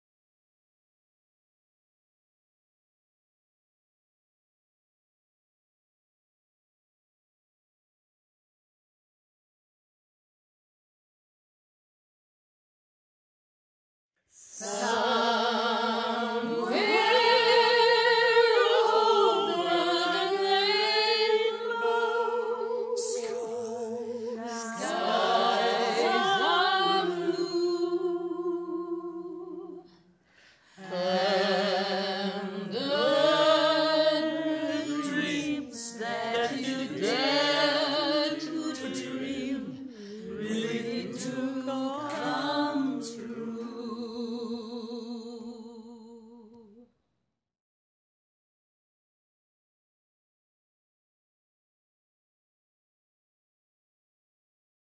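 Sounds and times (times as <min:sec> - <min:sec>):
group singing with vibrato: 0:14.5 - 0:30.0, 0:30.7 - 0:46.6.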